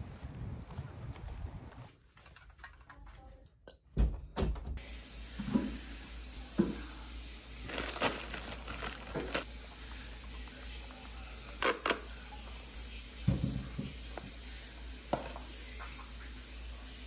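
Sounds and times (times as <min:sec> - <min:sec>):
steady hiss: 0:04.8 - 0:17.0
plastic bag crinkling: 0:07.6 - 0:09.5.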